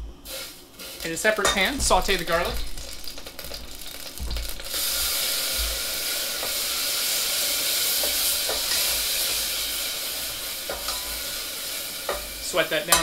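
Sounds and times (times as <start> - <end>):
garlic sizzling in a saucepan: 0.1 - 13.0.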